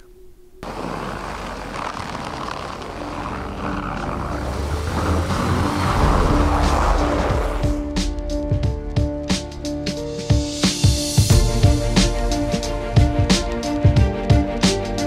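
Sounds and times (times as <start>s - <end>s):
suv engine rumble off-road: 0.6s - 8.2s.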